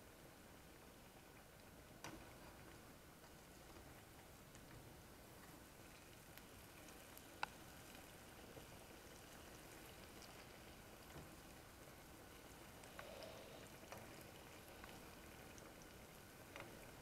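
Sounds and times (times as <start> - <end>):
small crackles: 0.0 - 17.0
bananas sizzling in oil: 5.2 - 17.0.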